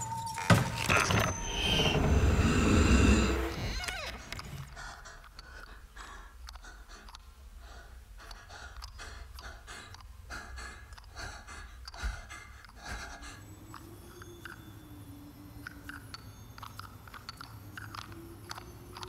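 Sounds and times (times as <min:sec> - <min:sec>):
girl panting: 0:04.7 - 0:13.7.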